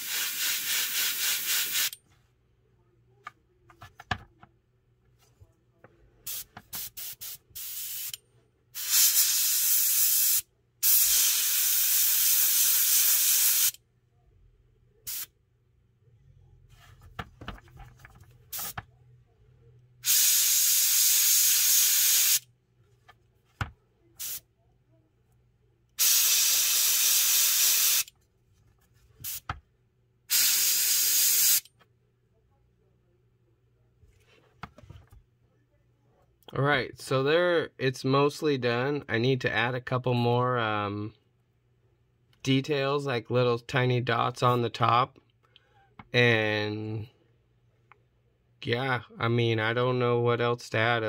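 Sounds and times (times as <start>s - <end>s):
airbrush spraying hiss: 0.0s - 2.0s, 6.3s - 8.2s, 8.8s - 13.8s, 15.1s - 15.3s, 20.0s - 22.4s, 24.2s - 24.4s, 26.0s - 28.1s, 29.2s - 29.5s, 30.3s - 31.6s.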